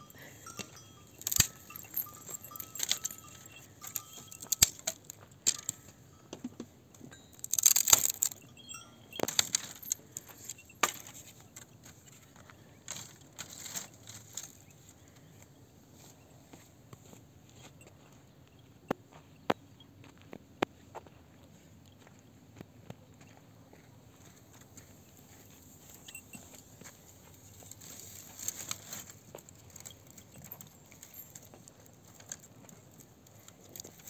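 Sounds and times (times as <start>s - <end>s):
dry branches cracking and scraping: 1.2s - 5.8s, 7.4s - 8.4s, 12.9s - 14.7s, 27.5s - 31.2s.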